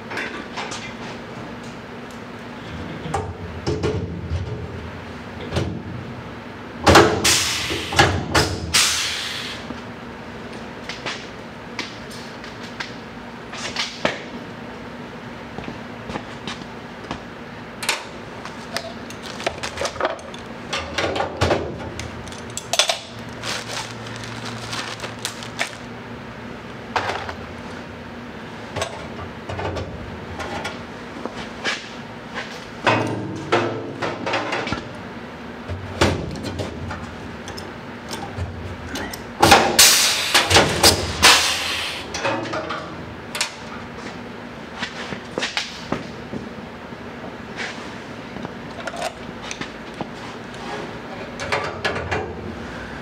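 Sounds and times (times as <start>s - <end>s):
tools and metal parts clattering: 18.6s - 25.8s, 38.9s - 39.2s, 48.7s - 49.7s.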